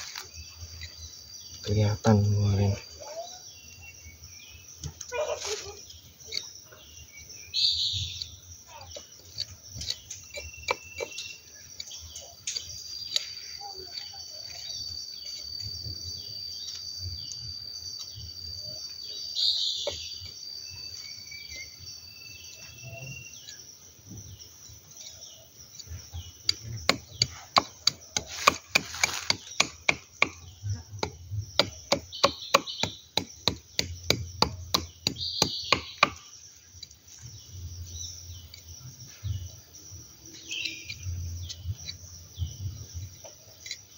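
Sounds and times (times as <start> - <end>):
birds calling: 0.0 - 43.9
insects buzzing: 0.0 - 43.9
knife chopping and scraping wood: 4.8 - 6.9, 7.8 - 17.4, 19.4 - 21.8, 22.6 - 37.5, 40.3 - 43.9.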